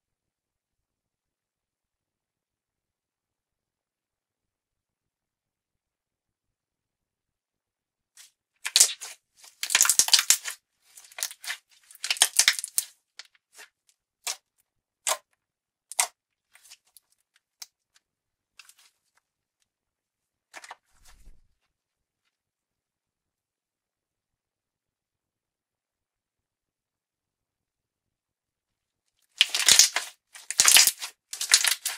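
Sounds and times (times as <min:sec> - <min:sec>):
slime squished with wet pops: 0:08.6 - 0:14.4, 0:29.4 - 0:31.9.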